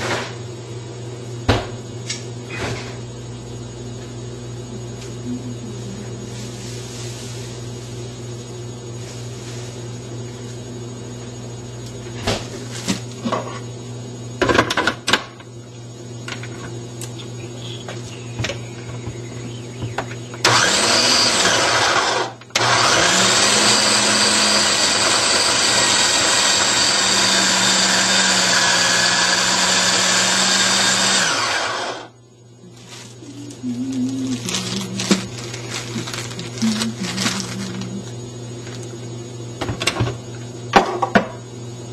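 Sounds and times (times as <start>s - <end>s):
food chopper motor whirring: 19.8s - 32.2s, 32.9s - 38.9s.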